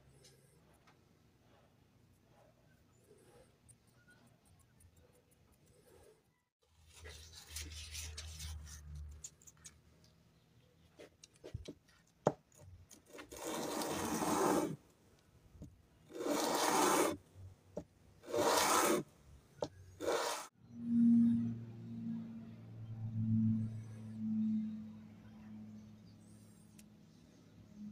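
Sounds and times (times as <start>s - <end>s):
antler rubbed on sandpaper: 6.9s - 9.0s, 13.3s - 14.8s, 16.1s - 17.2s, 18.2s - 19.0s, 20.0s - 20.5s.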